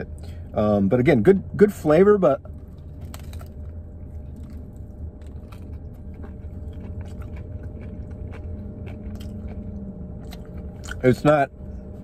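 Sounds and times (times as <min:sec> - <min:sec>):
low hum: 0:00.0 - 0:12.0
crunching sandwich bread: 0:02.5 - 0:12.0.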